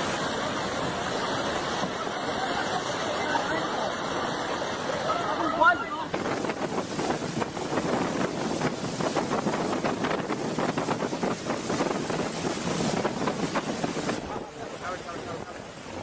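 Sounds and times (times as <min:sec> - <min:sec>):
floodwater rushing: 0:00.0 - 0:16.0
wind buffeting microphone: 0:06.1 - 0:16.0.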